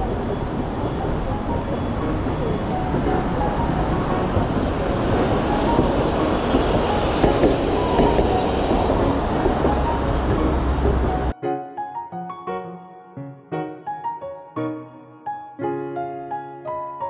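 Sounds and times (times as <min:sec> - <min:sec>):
city street rumble: 0:00.0 - 0:11.4
street clatter and clicks: 0:00.0 - 0:11.4
piano music: 0:00.0 - 0:17.0.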